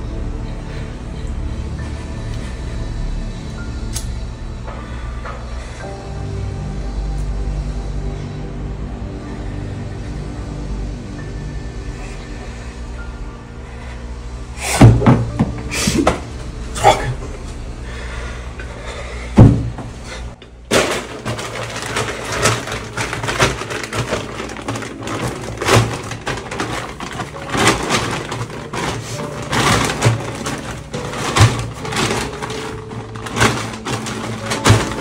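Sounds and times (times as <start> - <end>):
items clattering on shelves: 14.6 - 35.0
plastic packaging rustling: 19.4 - 35.0.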